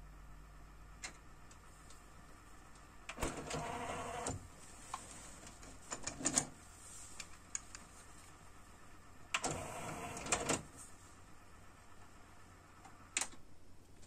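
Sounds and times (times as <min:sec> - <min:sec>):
mechanical whir: 0:03.1 - 0:04.5, 0:09.3 - 0:10.7.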